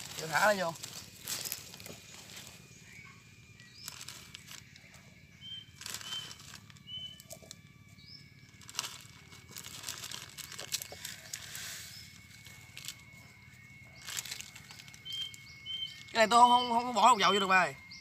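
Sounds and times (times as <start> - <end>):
plastic packet crinkling: 0.0 - 2.7, 3.6 - 4.8, 5.4 - 7.7, 8.4 - 13.2, 14.0 - 16.1
bird chirping: 0.0 - 18.0
dry noodles snapping: 8.6 - 11.5.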